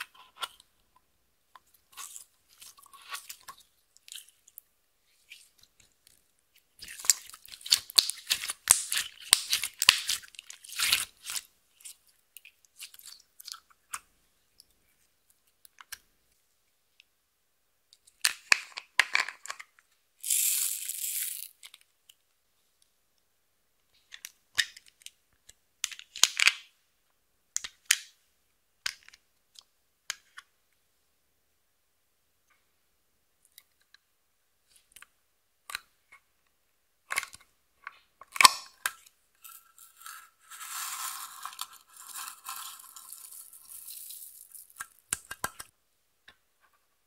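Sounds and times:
slime crackling and popping: 6.8 - 11.4.

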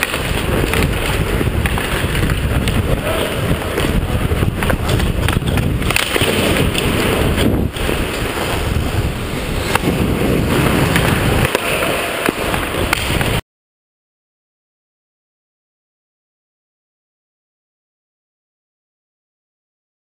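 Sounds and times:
stick and puck clicks: 0.0 - 8.5, 10.9 - 13.4
skate blades scraping ice: 0.0 - 13.4
wind rushing over microphone: 0.0 - 13.4.

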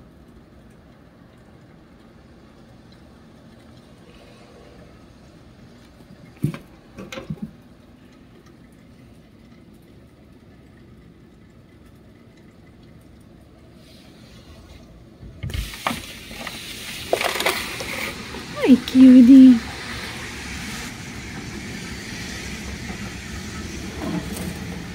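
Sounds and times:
tyres hissing on wet street: 13.7 - 14.8, 15.5 - 24.9.

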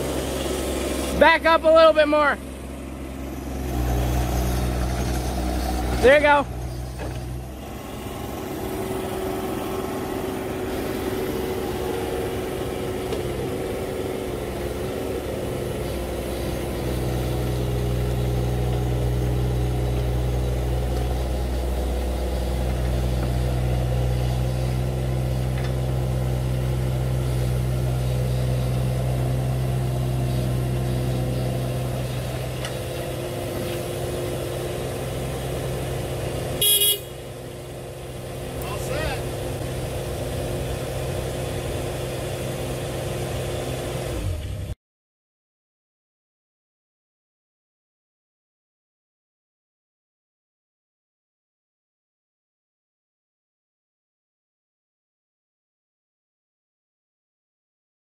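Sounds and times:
excavator diesel engine running: 0.0 - 44.8.

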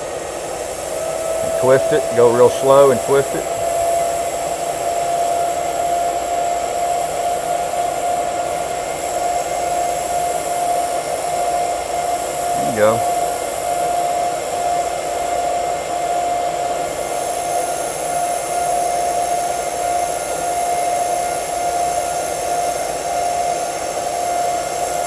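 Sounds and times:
welding arc hissing: 0.3 - 4.6.

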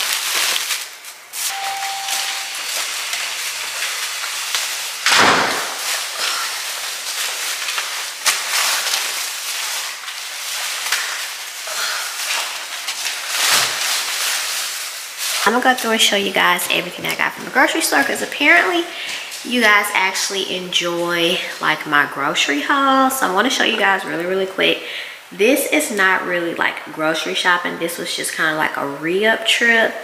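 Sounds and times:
rain hissing: 0.0 - 21.8
short steady tone: 1.5 - 2.9.

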